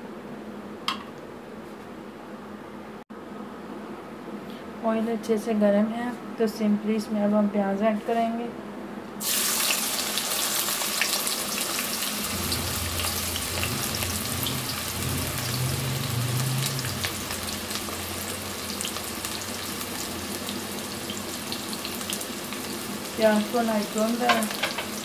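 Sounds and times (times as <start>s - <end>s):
onions sizzling in hot oil: 9.2s - 25.0s.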